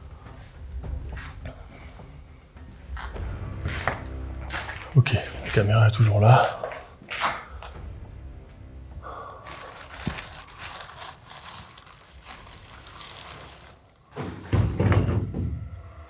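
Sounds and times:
dull low rumble: 0:03.0 - 0:06.9, 0:07.5 - 0:10.9
crackling and crunching: 0:09.0 - 0:14.8.

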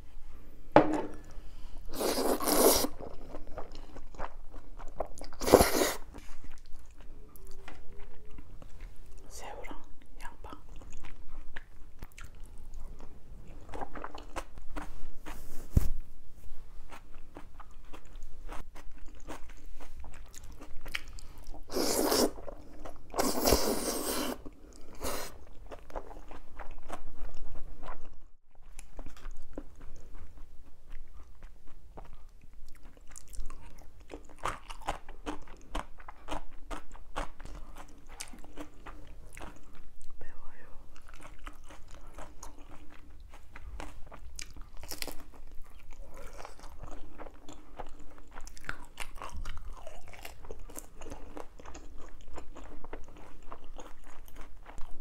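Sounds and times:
loud noodle slurps: 0:01.9 - 0:03.0, 0:05.4 - 0:06.1, 0:21.7 - 0:22.4, 0:23.2 - 0:25.4
chewing and wet mouth clicks: 0:09.8 - 0:14.9.

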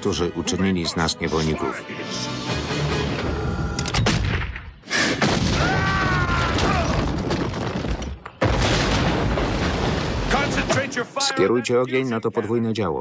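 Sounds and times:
cartoon explosions: 0:04.0 - 0:11.0.

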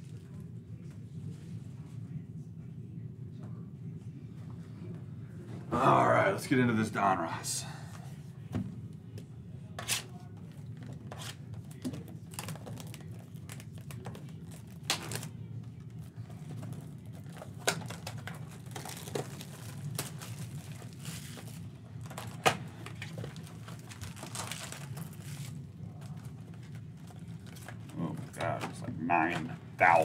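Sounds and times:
shrink wrap crinkling and tearing: 0:12.2 - 0:15.3, 0:15.9 - 0:28.2.

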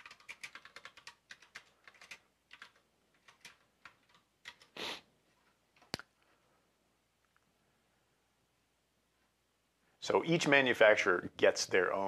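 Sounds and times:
keyboard typing: 0:00.0 - 0:04.8.

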